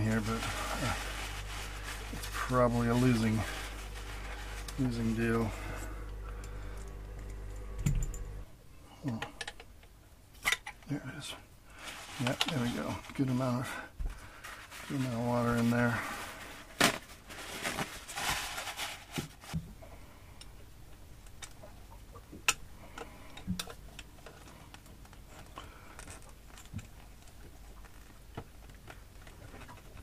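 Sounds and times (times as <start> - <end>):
paper rustle: 0.0 - 5.9, 11.7 - 19.6.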